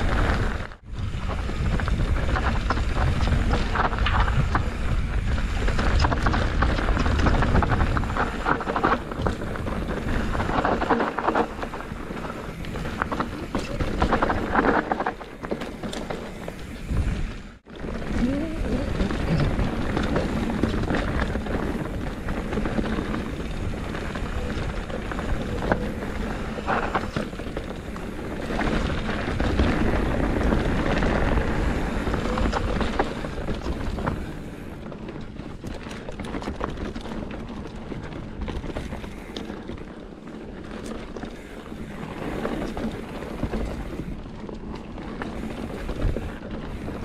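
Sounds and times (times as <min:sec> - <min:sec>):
wind rushing over microphone: 0:00.0 - 0:34.9
rattling and clatter over rough ground: 0:00.0 - 0:47.0.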